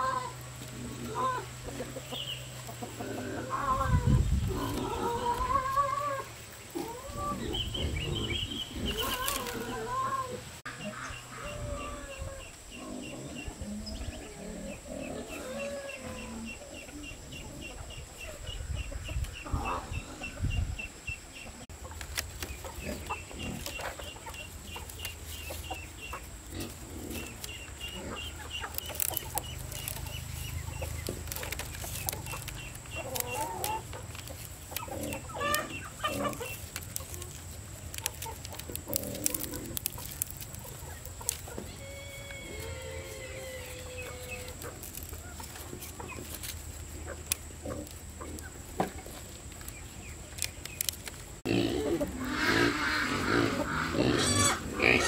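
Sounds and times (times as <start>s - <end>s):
chickens clucking: 0.0s - 55.0s
bamboo strips clicking and rustling: 4.5s - 9.9s, 21.7s - 51.7s.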